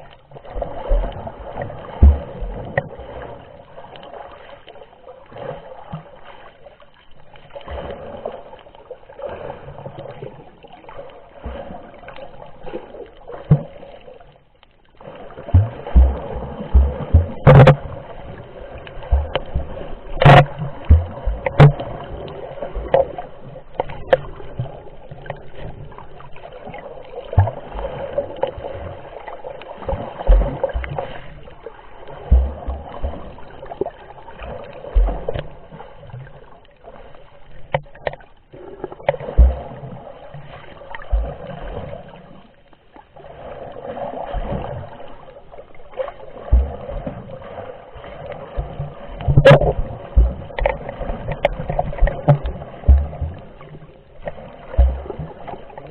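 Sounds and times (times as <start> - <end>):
water sloshing and bubbling: 0.0 - 55.9
low thumps: 15.6 - 17.9, 19.1 - 21.9, 48.6 - 50.8, 51.9 - 53.6
sharp knocks: 16.8 - 17.8.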